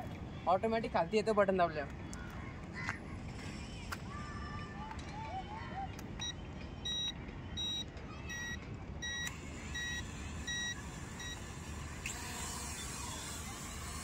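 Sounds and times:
short high beeps: 0:06.2 - 0:11.4
drone propellers whirring: 0:09.0 - 0:14.0.

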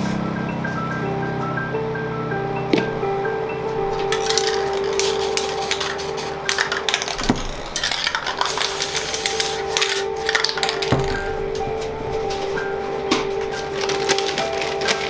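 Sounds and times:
spray-paint can hissing: 0:04.1 - 0:11.3.

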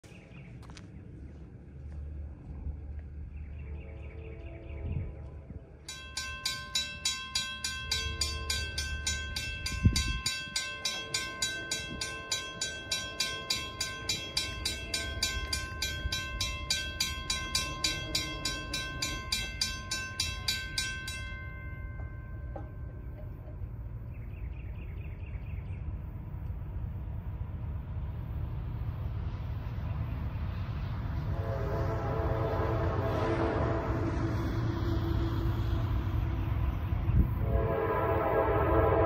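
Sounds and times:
railroad crossing bell ringing: 0:05.8 - 0:25.1.

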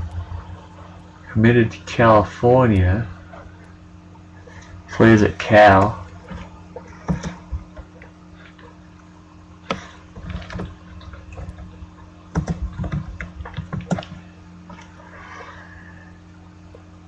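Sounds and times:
low electrical hum: 0:00.0 - 0:17.0
keyboard typing: 0:12.3 - 0:14.2.

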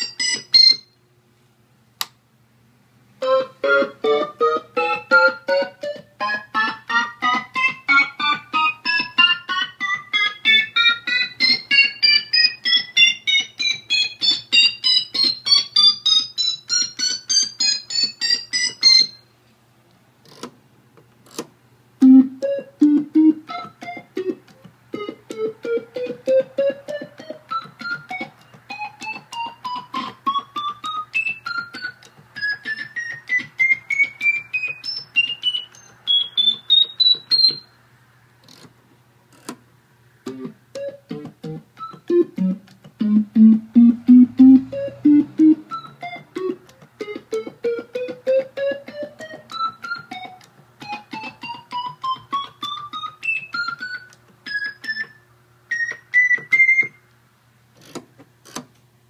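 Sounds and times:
combo organ notes: 0:00.0 - 0:00.9, 0:03.2 - 0:19.2, 0:22.0 - 0:37.7, 0:40.3 - 0:57.0.

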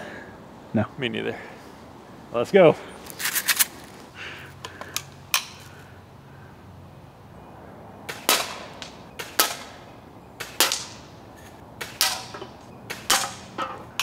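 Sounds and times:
bb gun shots hitting can: 0:10.4 - 0:11.0.

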